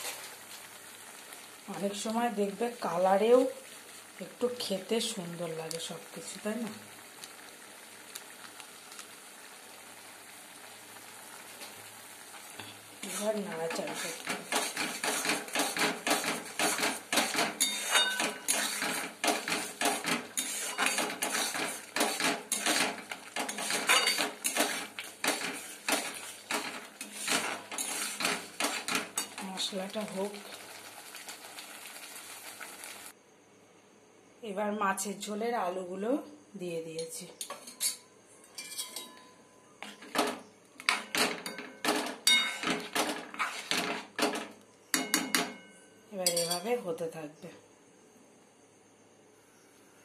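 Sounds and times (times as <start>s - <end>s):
spatula scraping metal pan: 12.6s - 29.4s, 38.6s - 39.2s, 40.9s - 44.4s.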